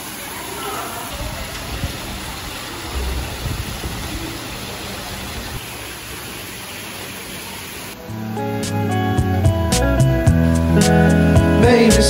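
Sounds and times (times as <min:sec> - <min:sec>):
outdoor noise hiss: 0:00.0 - 0:12.0
low rumbles: 0:01.1 - 0:06.2.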